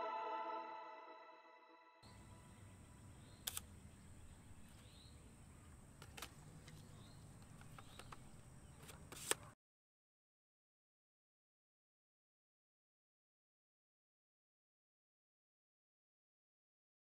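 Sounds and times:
faint outdoor background: 0.0s - 9.6s
camera mechanical clicks: 3.4s - 3.7s.

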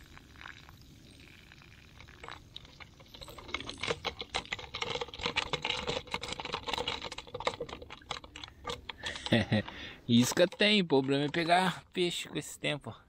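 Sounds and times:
shrimp clicking and tapping in a trap: 1.9s - 11.8s.

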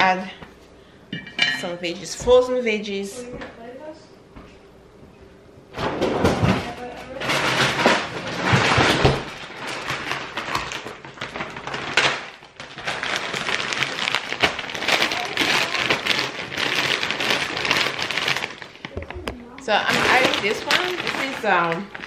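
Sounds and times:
plastic bag crinkling: 6.8s - 22.0s
frozen pieces shifting: 7.1s - 22.0s.

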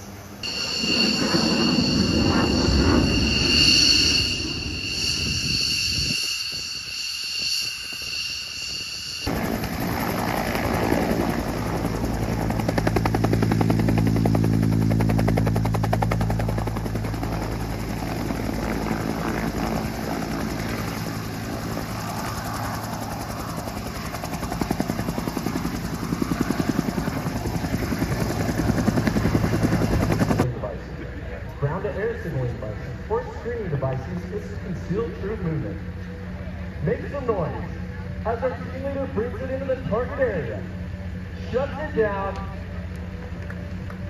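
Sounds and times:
high whine: 0.0s - 30.4s
helicopter rotors chopping: 7.7s - 30.5s.

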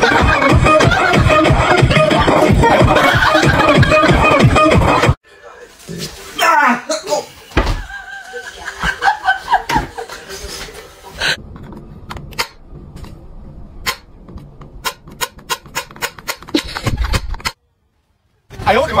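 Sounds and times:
person laughing: 0.0s - 5.2s, 16.5s - 17.5s.

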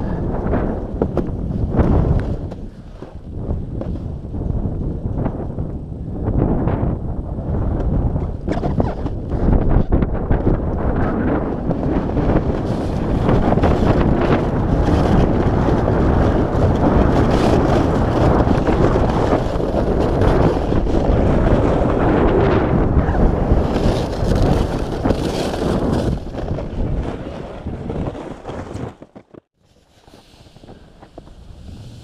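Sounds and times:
wind buffeting microphone: 0.0s - 29.5s
sled sliding over packed snow: 7.7s - 32.0s.

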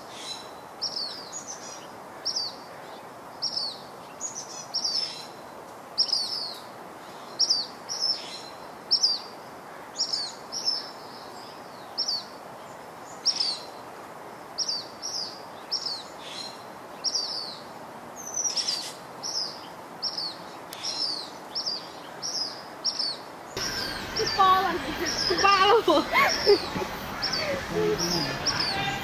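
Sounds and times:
background hiss: 0.0s - 29.0s
bird chirping: 6.0s - 9.3s, 14.6s - 29.0s.

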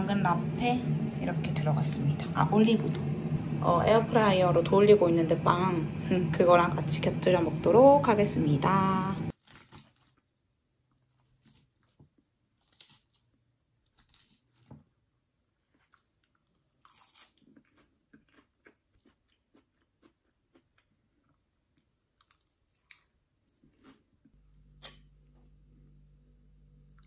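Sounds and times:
faint crunching and chewing: 9.3s - 24.4s.

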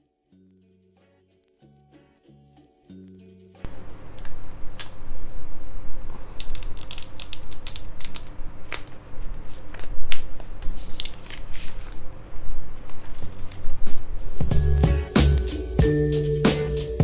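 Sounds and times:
plastic shrink-wrap crinkling: 6.1s - 13.6s.

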